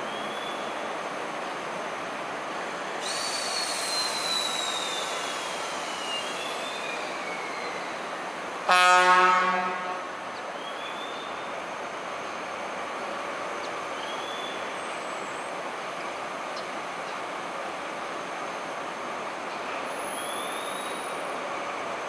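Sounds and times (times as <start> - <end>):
diesel locomotive moving slowly: 0.0 - 22.0
high wheel squeal: 3.0 - 8.3, 19.9 - 21.2
locomotive horn blast: 8.7 - 10.1.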